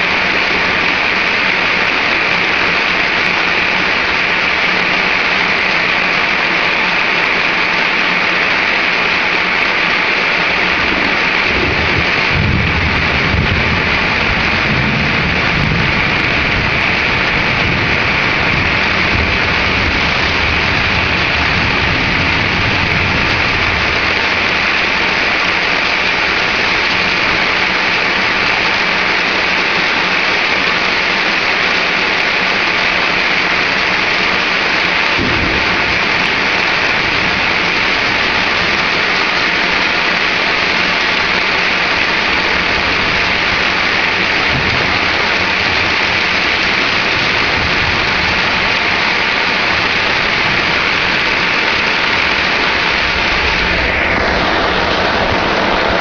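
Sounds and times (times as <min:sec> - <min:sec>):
heavy rain pouring: 0:00.0 - 0:56.0
thunder rumble: 0:10.6 - 0:28.5, 0:34.2 - 0:56.0.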